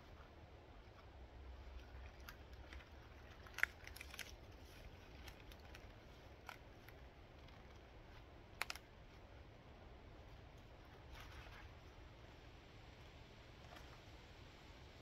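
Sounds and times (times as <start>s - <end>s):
faint sharp clicks and snaps: 8.5s - 9.2s.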